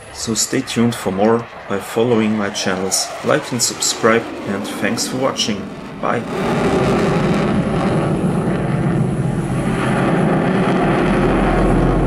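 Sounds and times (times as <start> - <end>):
fighter jet roar: 0.0 - 12.0.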